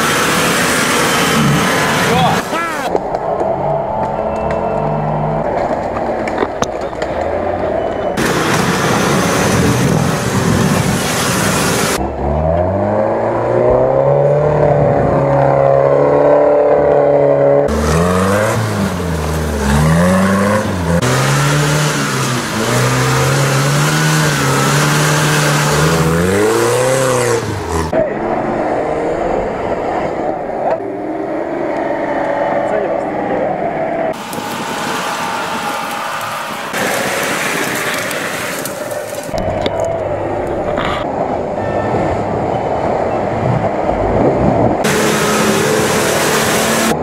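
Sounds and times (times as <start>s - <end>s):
off-road engines revving: 0.0s - 47.0s
loud rushing noise: 7.4s - 12.1s, 17.6s - 47.0s.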